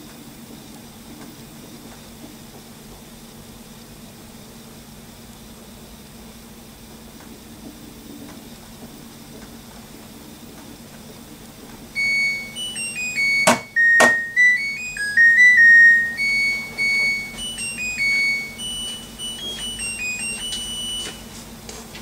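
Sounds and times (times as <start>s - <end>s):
washer-dryer beeping melody: 12.0s - 21.4s.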